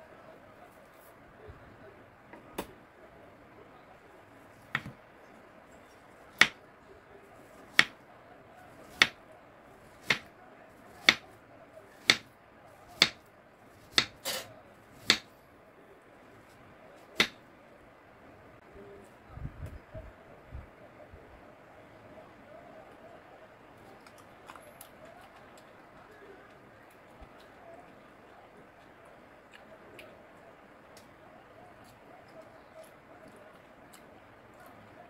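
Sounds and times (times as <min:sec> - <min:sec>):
knife tapping cutting board: 0:12.1 - 0:12.3.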